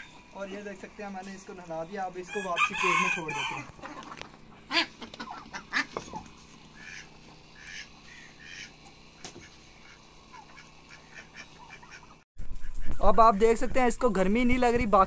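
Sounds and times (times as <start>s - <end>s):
ducks quacking: 2.2s - 12.2s.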